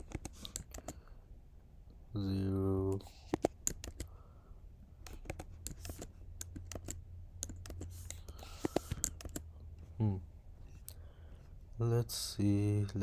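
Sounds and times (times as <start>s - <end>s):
keyboard typing clicks: 0.0s - 1.0s, 2.9s - 4.1s, 5.0s - 9.5s.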